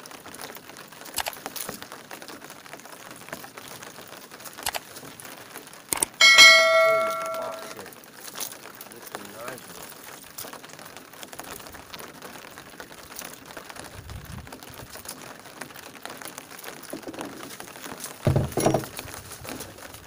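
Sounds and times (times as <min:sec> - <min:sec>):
rain pattering: 0:00.0 - 0:06.3, 0:07.3 - 0:20.0
dull thumps: 0:18.3 - 0:19.1.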